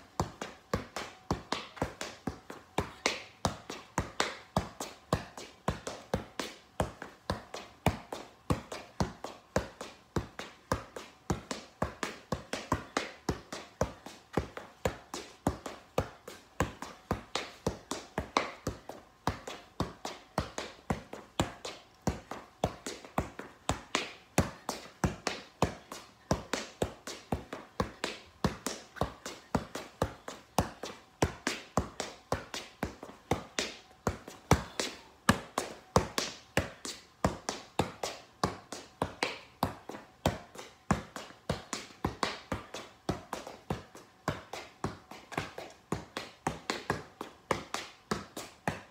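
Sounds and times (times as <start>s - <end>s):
soccer ball being juggled: 0.0s - 48.9s.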